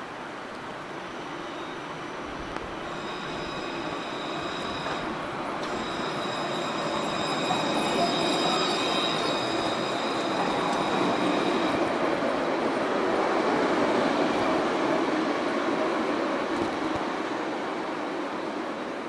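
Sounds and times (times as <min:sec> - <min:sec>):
tram wheels rumbling on rails: 0:00.0 - 0:19.0
high wheel squeal: 0:02.8 - 0:12.0.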